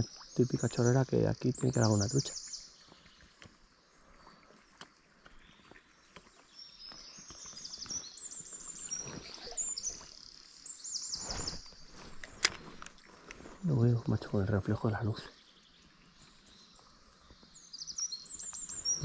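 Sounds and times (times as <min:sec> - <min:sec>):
shallow river flowing: 0:00.0 - 0:19.0
songbird trilling: 0:17.6 - 0:19.0.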